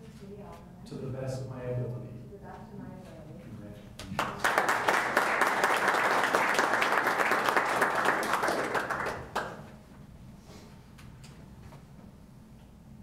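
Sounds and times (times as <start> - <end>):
audience applauding: 4.1 - 9.7.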